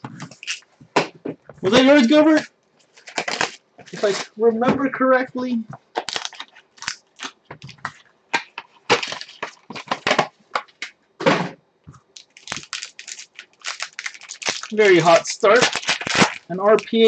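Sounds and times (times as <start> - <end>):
foil wrapper crinkling: 1.6 - 4.4, 5.9 - 10.9, 12.1 - 17.0.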